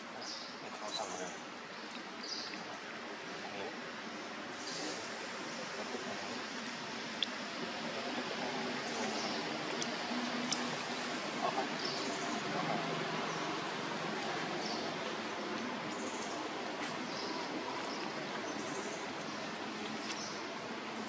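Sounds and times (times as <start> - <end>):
steady outdoor hiss: 0.0 - 21.0.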